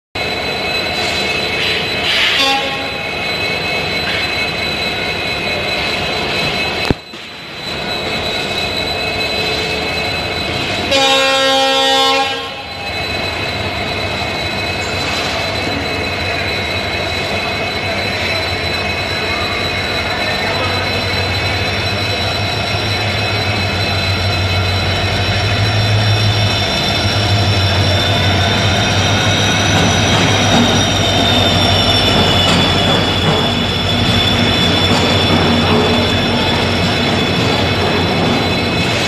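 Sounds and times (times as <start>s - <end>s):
train rumble and hum: 0.2s - 39.0s
train horn: 2.1s - 3.0s, 10.9s - 12.7s.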